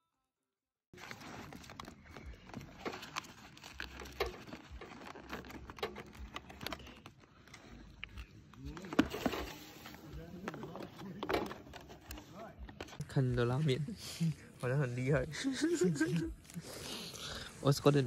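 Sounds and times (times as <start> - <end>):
aluminium foil tray crinkling: 1.0 - 13.1.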